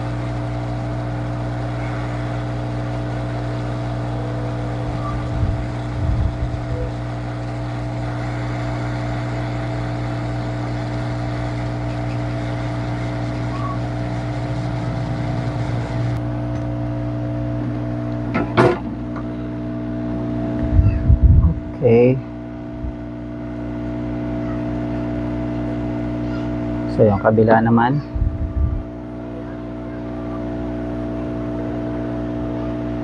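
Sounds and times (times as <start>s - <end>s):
hot air station blowing: 0.0s - 16.3s.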